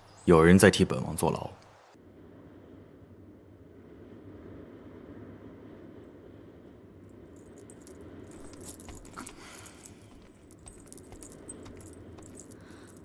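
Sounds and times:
low steady hum: 0.0s - 13.0s
beaded jewellery jingling: 7.1s - 13.0s.

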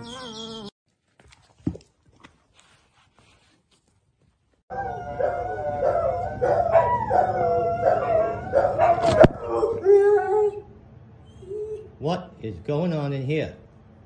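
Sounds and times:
dog howling and whining: 4.7s - 12.0s.

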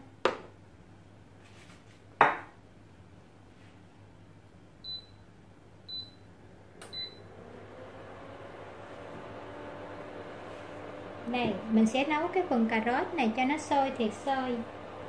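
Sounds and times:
low hum with steady tone: 0.0s - 7.4s.

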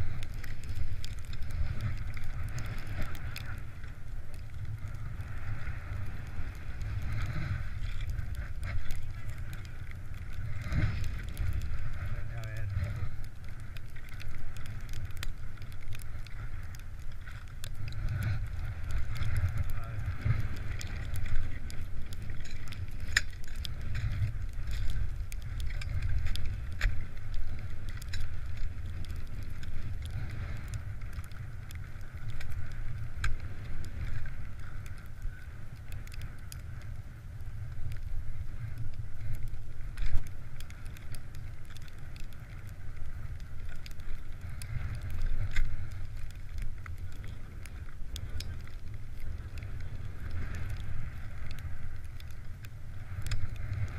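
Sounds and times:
skis scraping on icy snow: 0.0s - 34.8s
wind rumbling on microphone: 0.0s - 53.9s.

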